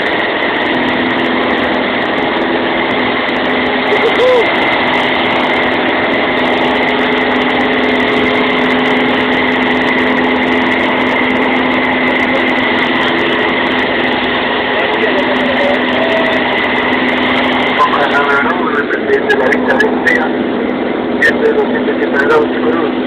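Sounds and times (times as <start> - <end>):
aircraft engine drone in cabin: 0.0 - 23.0.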